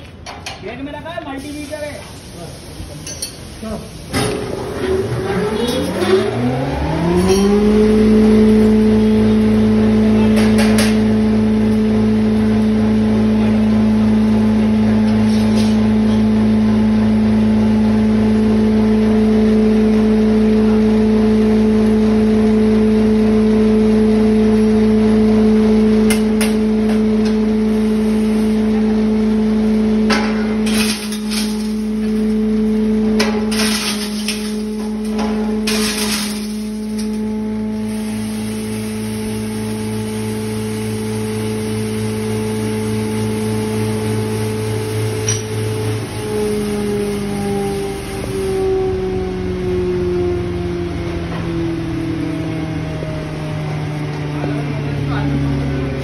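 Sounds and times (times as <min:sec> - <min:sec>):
glass bottles crashing and crushed: 0:30.6 - 0:32.3, 0:33.4 - 0:37.3.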